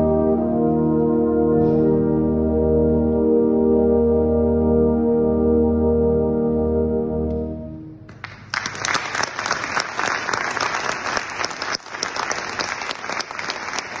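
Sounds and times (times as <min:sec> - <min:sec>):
brass band chord: 0:00.0 - 0:08.1
audience applause: 0:08.2 - 0:14.0.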